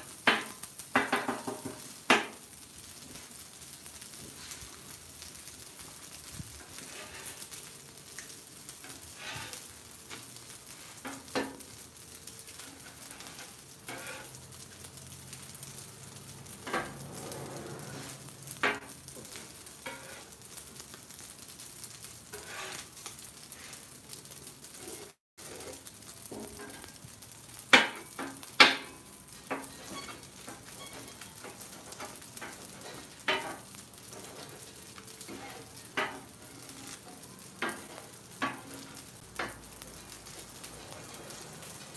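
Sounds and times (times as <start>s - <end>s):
eggs sizzling on a griddle: 0.0s - 41.9s
metal spatula scraping griddle: 6.2s - 14.6s, 16.4s - 20.5s, 22.3s - 23.9s, 24.7s - 27.0s, 27.7s - 41.9s
spatula clacks: 35.2s - 37.0s, 37.6s - 39.7s.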